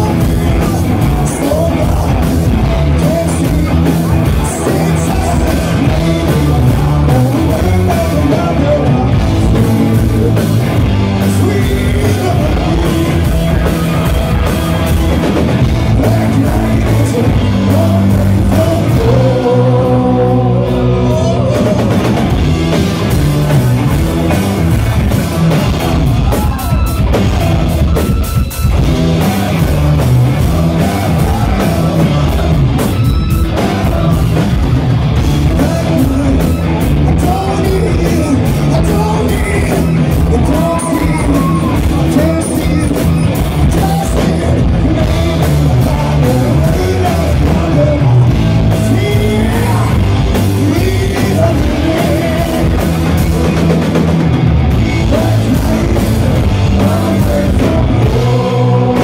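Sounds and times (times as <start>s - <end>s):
live rock band playing: 0.0s - 59.0s
several singers: 15.6s - 22.1s, 29.0s - 34.7s, 35.4s - 53.6s, 54.7s - 59.0s.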